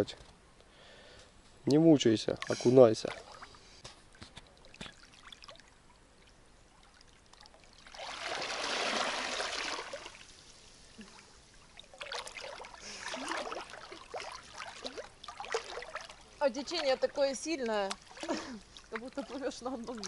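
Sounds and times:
water sloshing from swimming: 2.3 - 20.0
person plunging into water: 7.4 - 10.2, 11.0 - 16.3.

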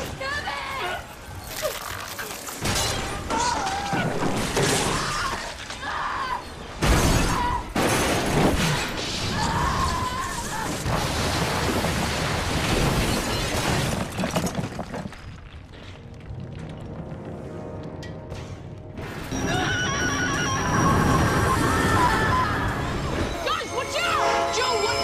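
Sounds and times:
metal and glass grinding and shattering: 1.3 - 5.8, 10.2 - 15.5
people screaming: 3.2 - 6.6, 9.2 - 10.9, 19.3 - 25.0.

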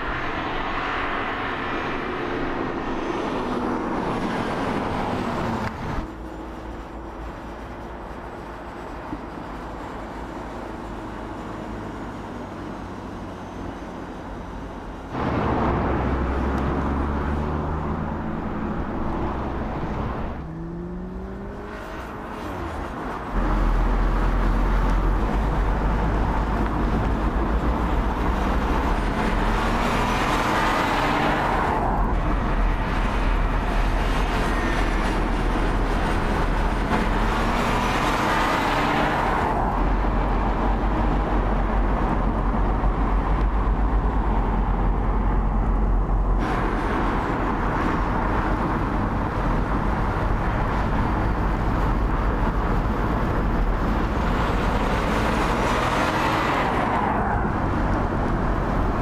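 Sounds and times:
tyre and road noise: 0.0 - 59.0
car engine accelerating: 15.2 - 22.4
car passing by: 54.0 - 59.0.

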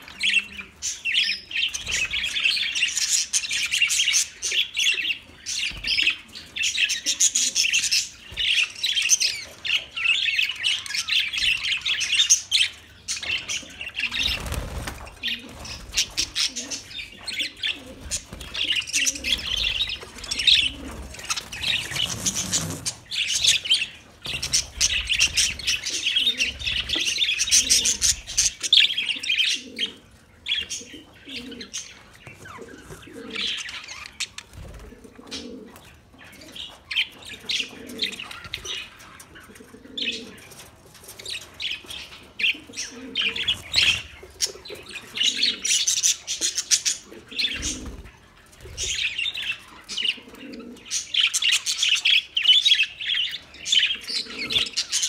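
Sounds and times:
budgerigars chattering: 15.2 - 34.3.

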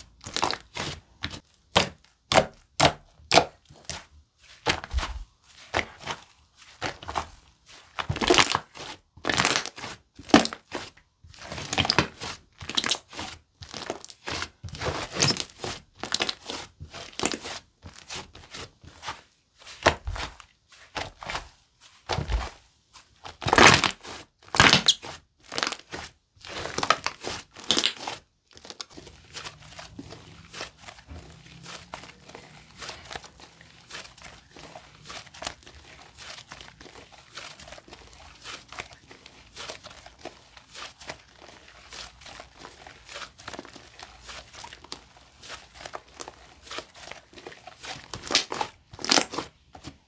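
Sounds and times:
slime squelching by hand: 0.0 - 50.0.

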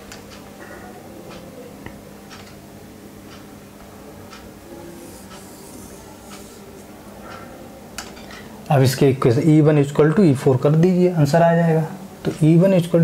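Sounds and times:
faint steady hum: 0.0 - 13.0
marker pen scraping whiteboard: 5.0 - 6.6.

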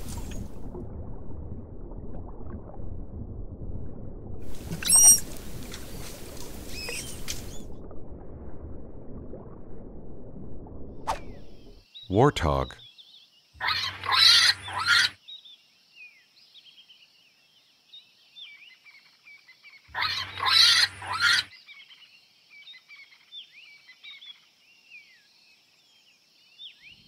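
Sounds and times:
birds chirping: 4.8 - 7.7.

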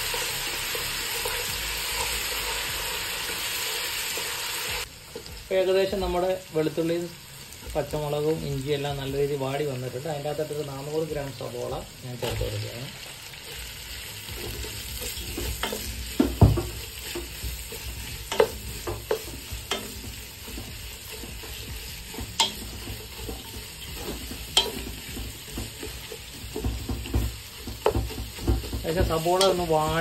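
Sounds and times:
onions sizzling in hot oil: 0.0 - 30.0
spatula knocking against pan: 14.4 - 30.0.

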